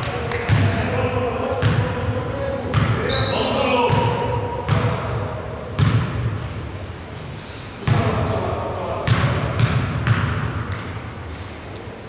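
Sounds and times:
basketball bouncing on wooden floor: 0.0 - 0.8, 1.6 - 2.0, 2.7 - 3.0, 5.8 - 6.4, 9.1 - 11.0.

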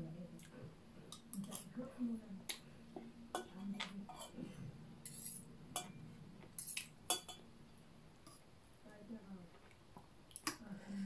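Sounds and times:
cutlery clinking on plates: 5.0 - 7.4.

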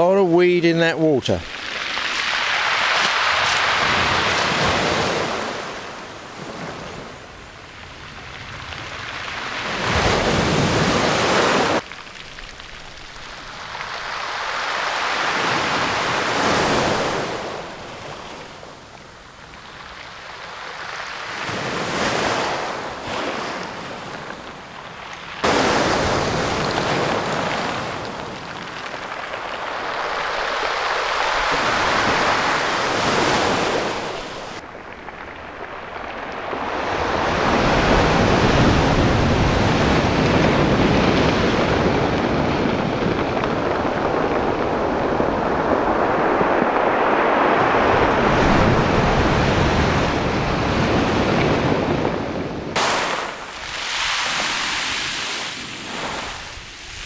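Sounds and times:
small waves breaking: 1.3 - 34.6, 52.8 - 57.0
pebbles rattling in backwash: 25.4 - 32.6.

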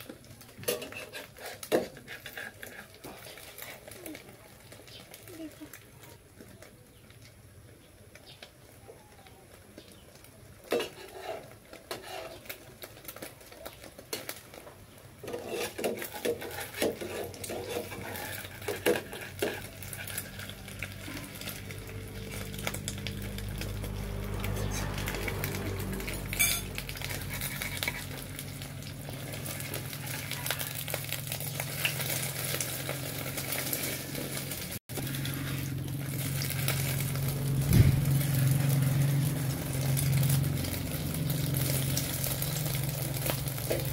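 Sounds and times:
eggs sizzling: 0.0 - 43.9
metal spatula scraping a frying pan: 0.6 - 4.0, 10.7 - 12.6, 15.2 - 23.0, 23.6 - 30.3, 31.8 - 37.0.

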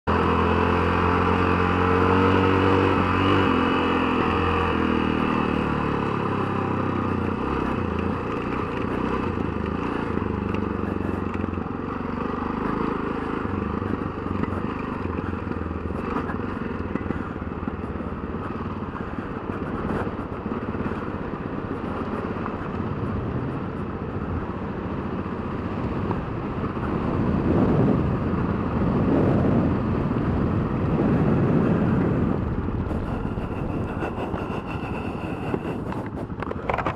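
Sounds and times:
motorcycle engine at speed: 0.0 - 36.9
wind rushing: 27.2 - 36.3.

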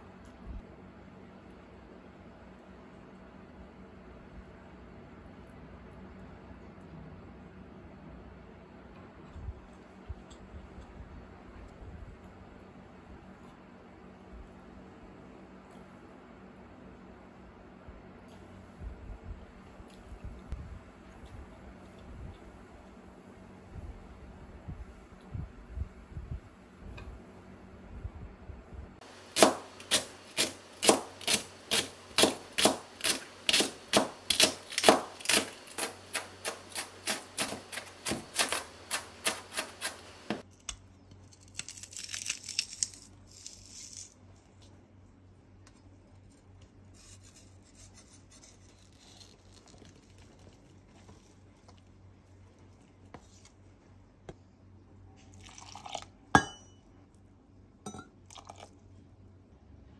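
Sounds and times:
knife chopping on cutting board: 29.0 - 40.4
rough scraping: 29.0 - 40.4.

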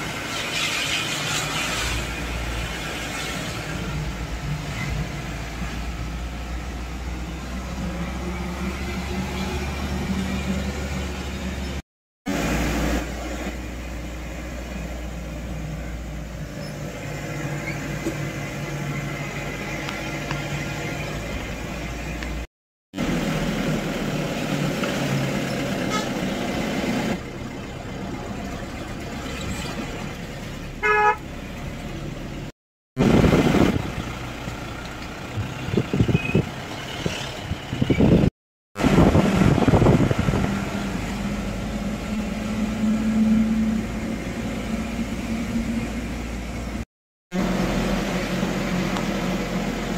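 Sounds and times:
car engine and tyre noise: 0.0 - 49.9
car horn toot: 25.9 - 26.2, 30.8 - 31.2.

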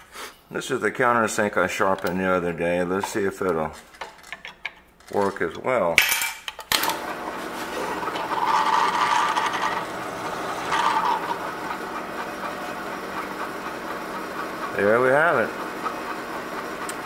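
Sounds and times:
drill press cutting steel: 6.8 - 17.0.

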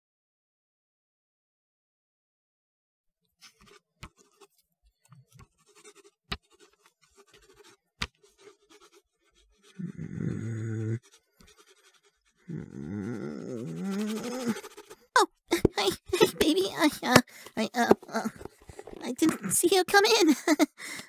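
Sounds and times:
pencil scratching on paper: 3.4 - 20.6
man humming: 9.8 - 11.1, 12.5 - 14.8.

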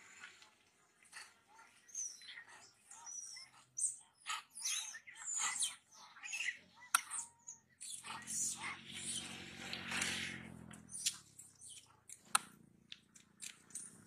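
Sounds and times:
high-pitched animal chirps and squeaks: 1.5 - 9.4, 10.9 - 11.9.

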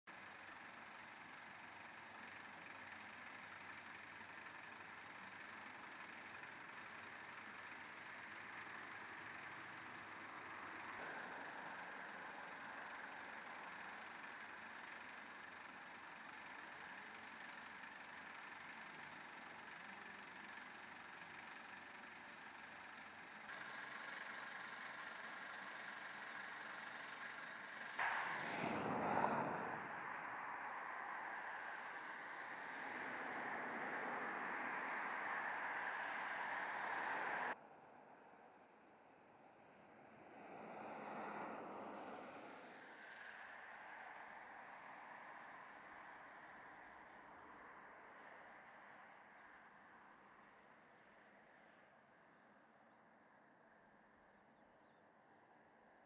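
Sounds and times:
faint outdoor background noise: 0.1 - 56.0
rush of noise: 28.0 - 37.6.

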